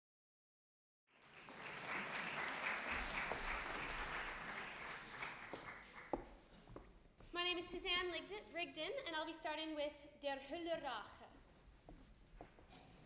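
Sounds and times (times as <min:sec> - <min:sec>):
audience applauding: 0:01.1 - 0:06.4.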